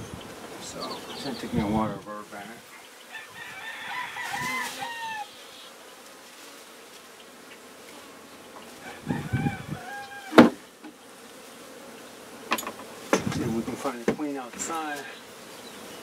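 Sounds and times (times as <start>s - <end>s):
chickens calling: 0.0s - 6.1s, 6.8s - 14.0s
honey bees buzzing: 0.0s - 16.0s
sharp knock: 10.3s - 10.6s.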